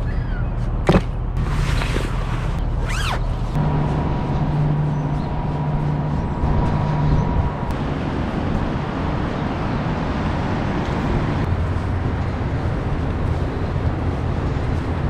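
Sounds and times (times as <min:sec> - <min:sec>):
outdoor rumble with hiss: 0:00.0 - 0:15.0.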